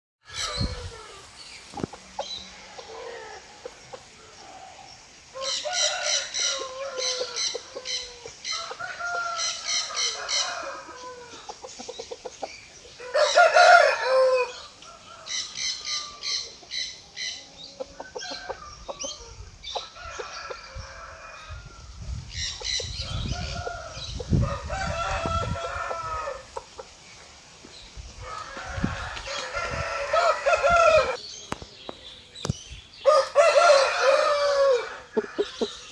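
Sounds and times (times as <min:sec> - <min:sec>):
rooster crowing: 0:04.4 - 0:11.4, 0:13.0 - 0:16.4, 0:23.0 - 0:26.5, 0:28.2 - 0:31.2, 0:33.0 - 0:35.7
chicken clucking: 0:06.5 - 0:13.4, 0:15.2 - 0:20.6.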